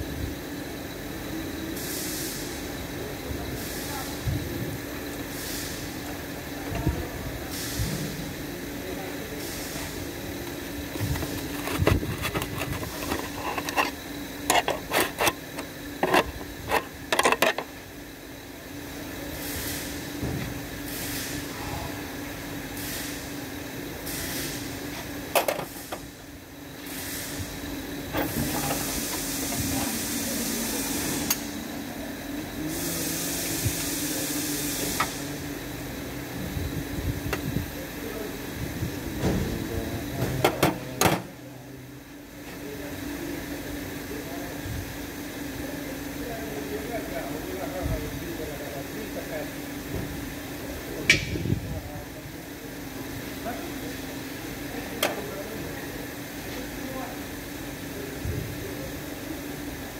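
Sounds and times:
steady low hum: 0:00.0 - 0:59.9
hiss: 0:01.6 - 0:02.7, 0:05.2 - 0:06.2, 0:24.1 - 0:24.8, 0:26.8 - 0:27.6, 0:28.2 - 0:31.8, 0:32.6 - 0:35.4.

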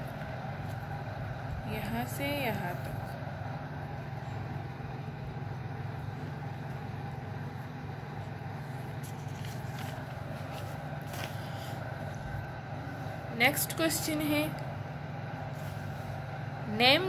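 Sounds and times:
low background hum: 0:00.0 - 0:17.0
book pages rustling: 0:08.2 - 0:12.3.

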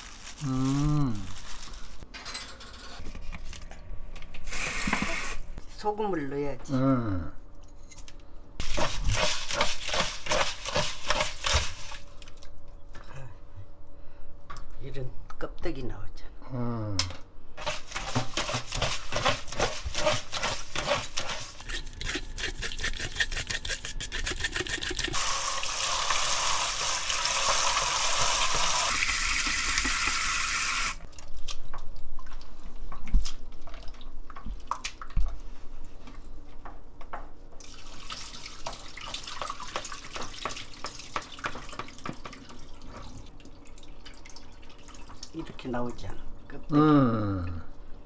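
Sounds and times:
faucet running into bowl: 0:24.4 - 0:31.0.

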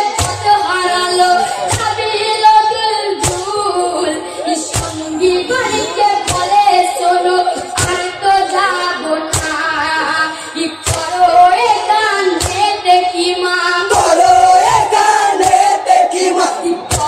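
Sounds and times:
sharp beat: 0:00.0 - 0:08.3
boy singing lament: 0:00.0 - 0:17.0
voices joining in singing: 0:10.8 - 0:17.0.

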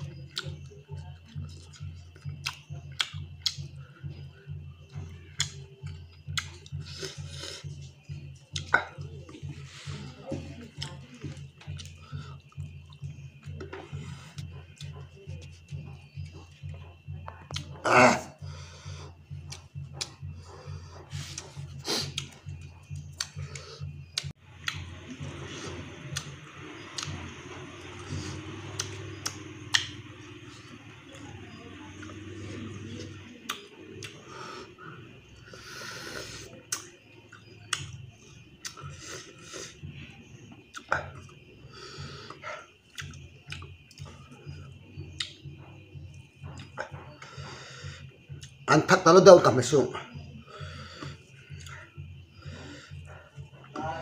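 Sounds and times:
wet chewing and lip-smacking: 0:00.0 - 0:17.8, 0:19.0 - 0:34.8, 0:35.4 - 0:47.6, 0:48.2 - 0:48.7, 0:50.5 - 0:53.7
low throbbing pulse: 0:00.0 - 0:54.0
steady low hum: 0:00.0 - 0:54.0
sharp mouth clicks: 0:01.3 - 0:03.7, 0:05.3 - 0:07.2, 0:17.4 - 0:17.8, 0:19.4 - 0:20.2, 0:21.0 - 0:24.9, 0:26.1 - 0:26.3, 0:27.8 - 0:31.3, 0:33.0 - 0:34.2, 0:35.6 - 0:38.0, 0:38.6 - 0:39.7, 0:40.7 - 0:41.4, 0:42.2 - 0:44.1, 0:45.1 - 0:45.4, 0:51.0 - 0:51.8.

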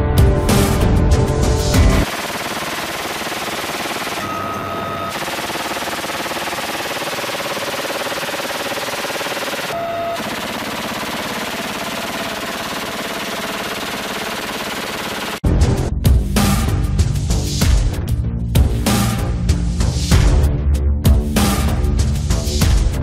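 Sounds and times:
heavy machine gun firing bursts: 0:02.0 - 0:15.4.

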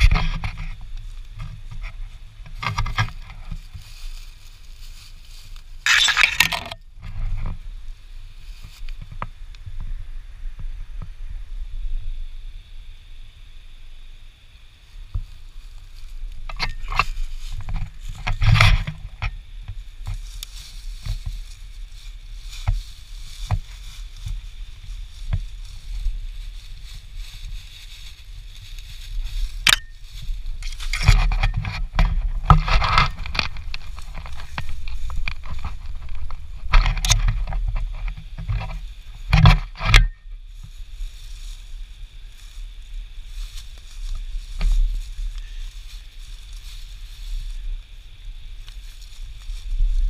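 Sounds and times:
footsteps crunching through leaves: 0:00.0 - 0:09.4, 0:14.8 - 0:50.0
steady low rumble: 0:00.0 - 0:50.0
twigs snapping: 0:02.5 - 0:06.8, 0:16.0 - 0:41.6.

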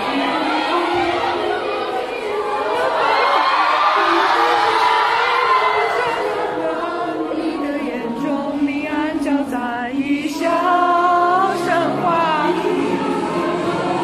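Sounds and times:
crowd singing along: 0:00.0 - 0:14.0
pop song playing: 0:00.0 - 0:14.0.

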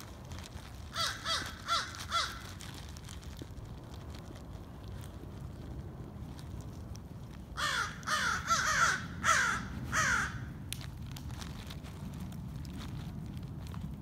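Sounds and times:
crows cawing: 0:00.9 - 0:02.6, 0:07.6 - 0:10.6.

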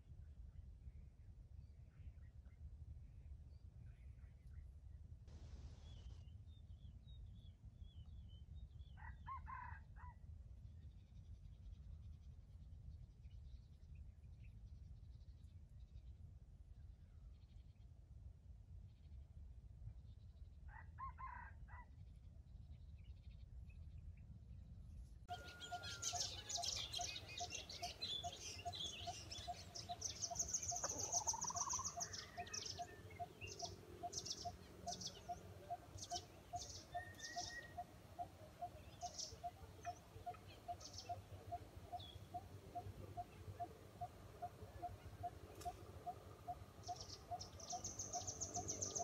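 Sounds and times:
chickens clucking: 0:25.3 - 0:33.3
faint high chirp: 0:25.3 - 0:49.0
rising bird call: 0:25.3 - 0:49.0.

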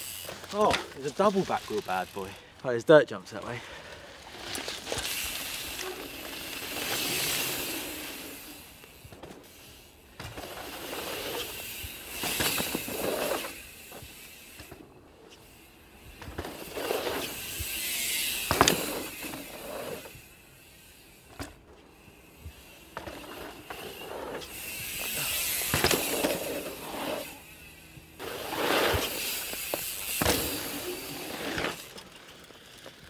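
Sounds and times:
bike tyres rushing over dirt: 0:00.0 - 0:33.0
bike landing thuds: 0:18.3 - 0:19.6, 0:24.8 - 0:26.8, 0:28.3 - 0:30.8.

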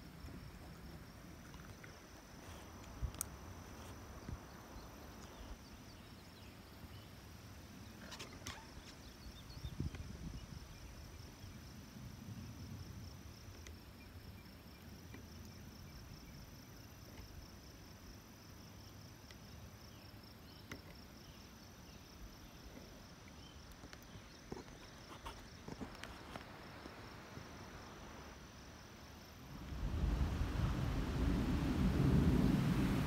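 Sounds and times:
wind rustling wheat: 0:00.0 - 0:12.6, 0:24.1 - 0:33.0
cricket trilling: 0:00.0 - 0:32.9.

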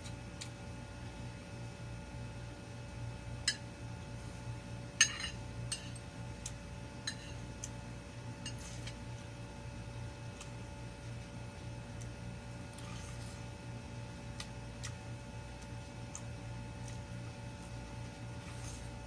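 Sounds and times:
cutlery clinking on ceramic: 0:05.0 - 0:06.0.

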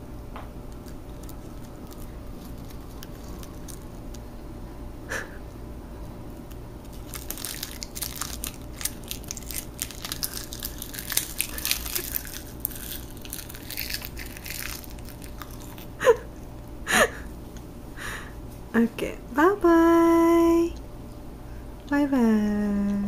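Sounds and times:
child crunching crisp seaweed: 0:00.7 - 0:04.3, 0:06.4 - 0:16.0.

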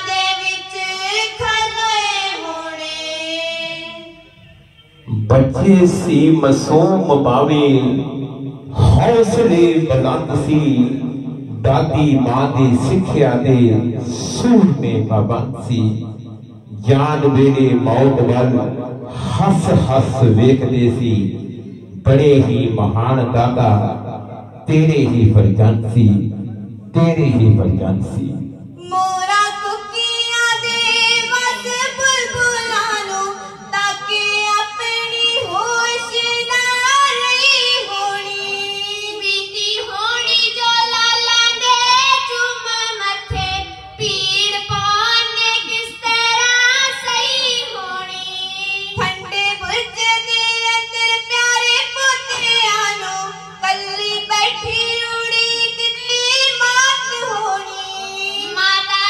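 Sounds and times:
children singing into microphones: 0:00.0 - 0:07.8, 0:28.8 - 0:59.0.

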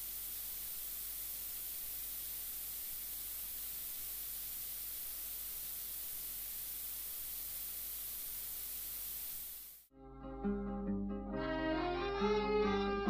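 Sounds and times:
static hiss: 0:00.0 - 0:09.9.

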